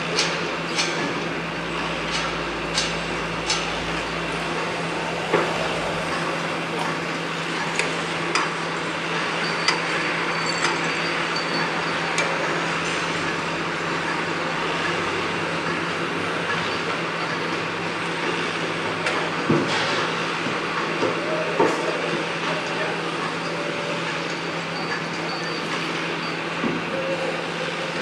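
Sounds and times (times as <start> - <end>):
constant low hum: 0.0 - 9.0
machinery and traffic noise: 0.0 - 28.0
high-pitched squeal: 1.4 - 9.6.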